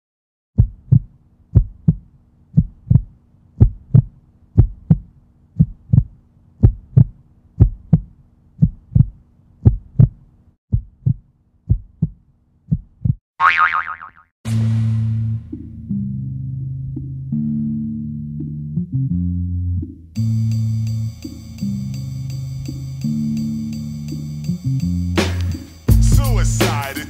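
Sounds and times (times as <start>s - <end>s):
heartbeat thumps: 0.6s - 13.2s.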